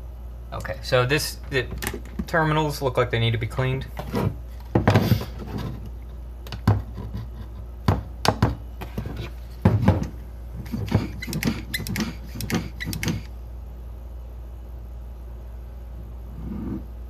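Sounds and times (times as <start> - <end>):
hand vacuum pump squeezes: 10.6 - 13.3.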